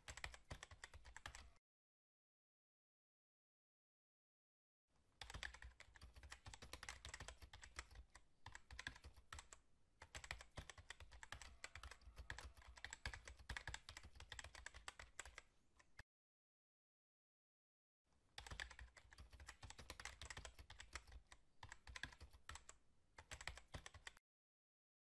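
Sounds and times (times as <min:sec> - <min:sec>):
computer keyboard typing: 0:00.0 - 0:01.6, 0:05.2 - 0:16.0, 0:18.4 - 0:24.2.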